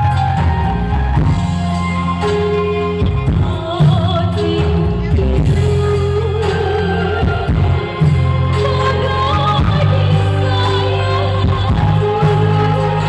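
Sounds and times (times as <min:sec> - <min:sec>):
bass and drum beat: 0:00.0 - 0:13.0
singing voice with long notes: 0:03.4 - 0:13.0.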